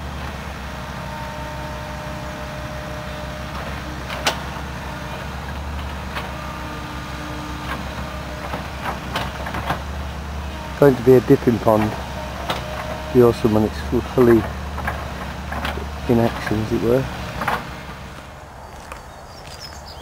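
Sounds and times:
distant diesel engine drone: 0.0s - 20.0s.

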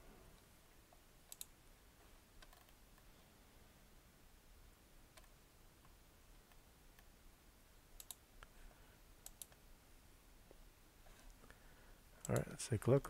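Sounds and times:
computer mouse clicks: 0.9s - 1.5s, 2.4s - 3.1s, 5.1s - 5.4s, 8.0s - 8.5s, 9.2s - 9.6s, 12.2s - 12.6s.

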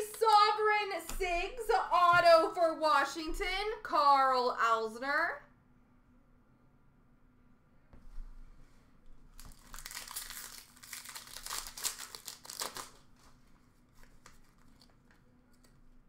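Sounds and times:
wrapper crinkling and tearing: 9.3s - 15.7s.

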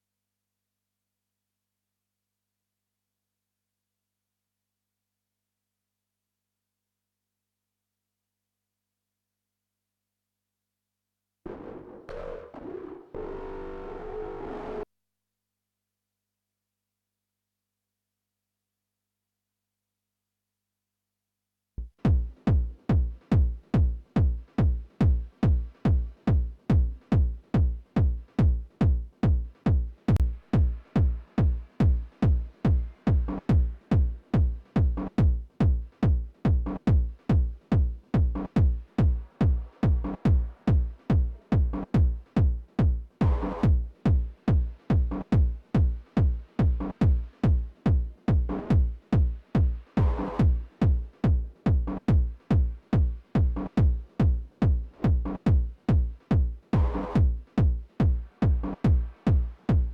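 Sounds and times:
techno kick drum beat: 21.8s - 59.9s.

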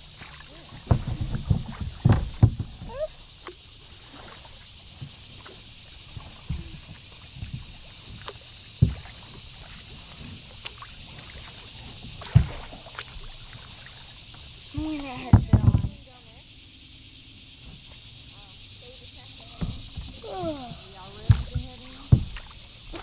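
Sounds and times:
paddle splashes and drips: 0.0s - 23.0s.

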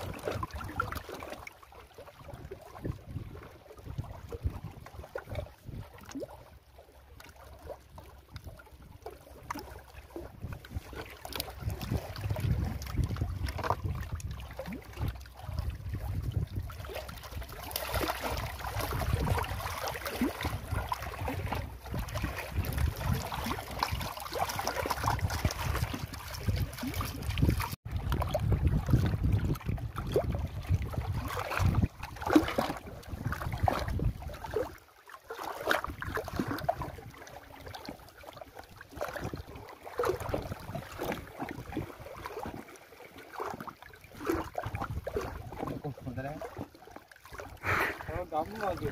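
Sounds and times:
wind on microphone: 0.0s - 1.1s, 2.1s - 6.5s, 7.9s - 34.8s, 35.7s - 38.0s, 38.8s - 42.6s, 44.1s - 46.7s
small knocks and splashes: 0.0s - 48.9s
water lapping against rocks: 0.0s - 48.9s.

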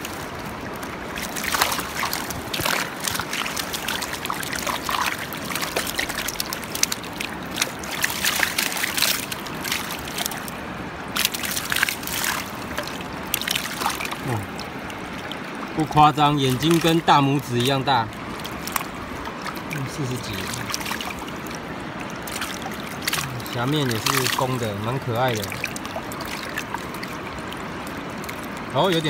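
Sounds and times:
fish thrashing: 0.0s - 28.7s
river rushing: 0.0s - 29.0s
water splashing and sloshing: 0.0s - 29.0s.

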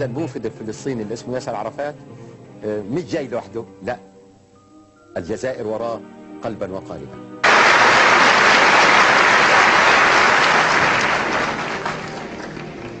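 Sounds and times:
large audience applauding: 7.4s - 13.0s.

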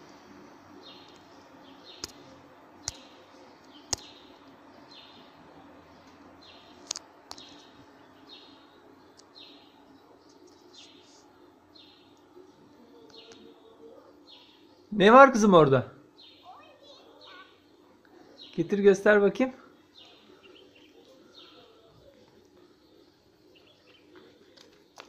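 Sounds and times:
low steady hum: 0.0s - 16.6s
sharp clicks: 2.0s - 2.2s, 2.8s - 4.2s.

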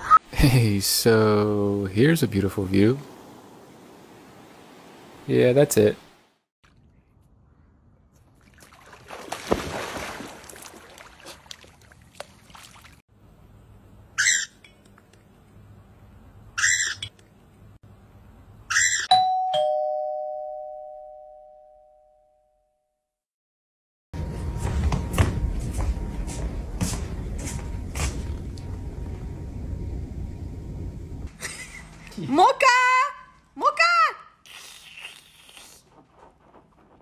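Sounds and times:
water splashing: 8.2s - 13.0s
parrot squawking: 14.2s - 14.6s, 16.6s - 17.1s, 18.7s - 19.1s
two-note doorbell chime: 19.1s - 22.9s.

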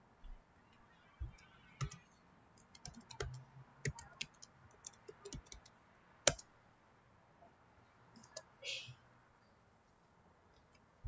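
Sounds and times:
computer keyboard typing: 1.2s - 2.0s, 2.6s - 5.7s.

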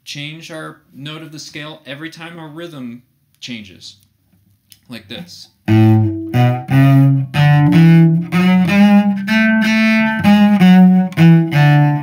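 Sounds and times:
cello playing staccato scale: 5.7s - 12.0s.

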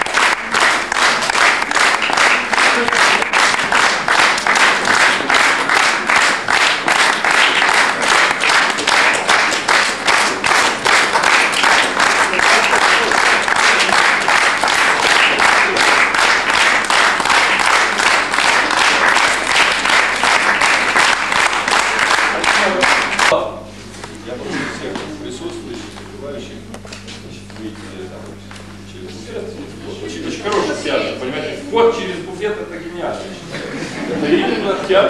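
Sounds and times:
audience clapping in rhythm: 0.0s - 23.4s.

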